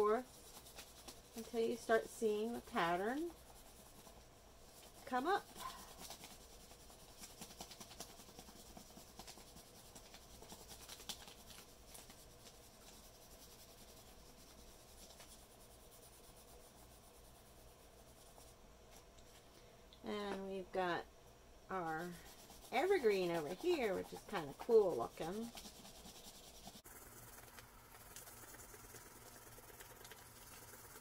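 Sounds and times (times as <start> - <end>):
pencil scratching on paper: 0.0 - 18.6, 21.7 - 27.6.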